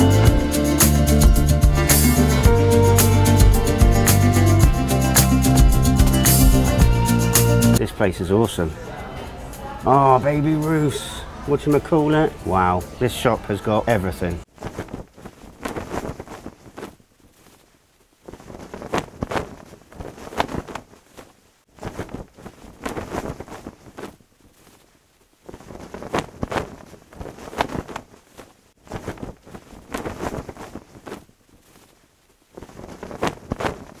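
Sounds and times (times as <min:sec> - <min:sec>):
cloth flag flapping in wind: 0:14.4 - 0:34.0.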